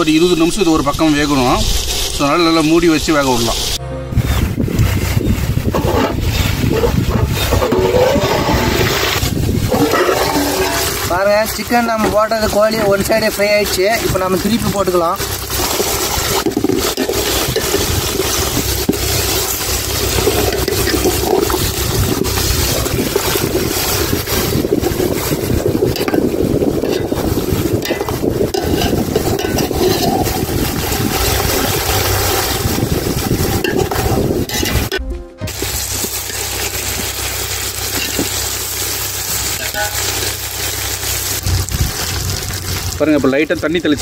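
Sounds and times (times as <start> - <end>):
hot oil sizzling and crackling: 0.0 - 44.0
metal spoon scraping pot: 5.7 - 11.1, 15.5 - 31.6, 33.6 - 35.0.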